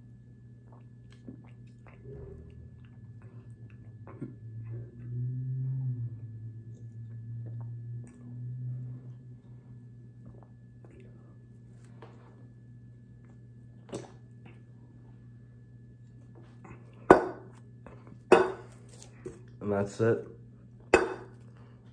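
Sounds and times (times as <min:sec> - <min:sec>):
low room hum: 0:00.0 - 0:21.9
person gulping fizzy drink: 0:00.6 - 0:04.4.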